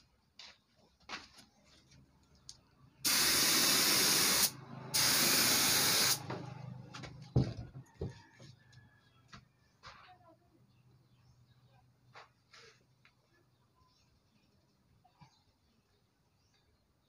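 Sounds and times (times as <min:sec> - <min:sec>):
air spray gun hissing: 0:03.0 - 0:06.3.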